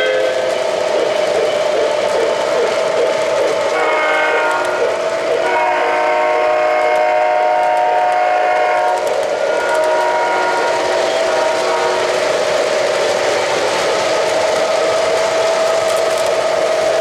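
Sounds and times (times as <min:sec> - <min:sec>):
train whistle: 0:00.0 - 0:01.1, 0:03.7 - 0:12.2
model train rolling on track: 0:00.0 - 0:17.0.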